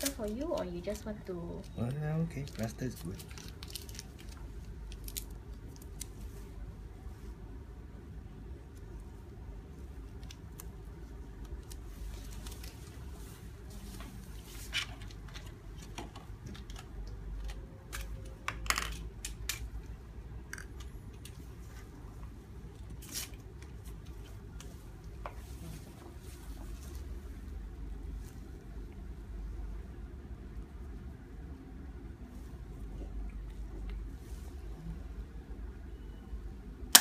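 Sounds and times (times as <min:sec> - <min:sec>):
low room hum: 0:00.0 - 0:37.0.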